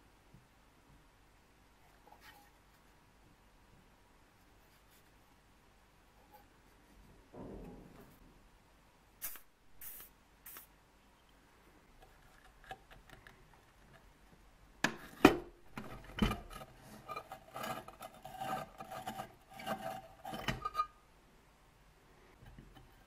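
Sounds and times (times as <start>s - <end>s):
metal scraping and clinking: 15.7s - 21.0s.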